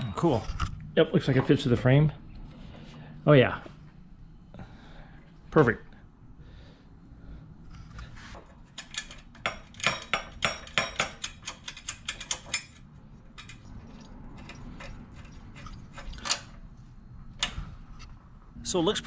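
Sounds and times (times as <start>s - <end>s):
sharp metallic clicks and clinks: 8.7s - 12.8s.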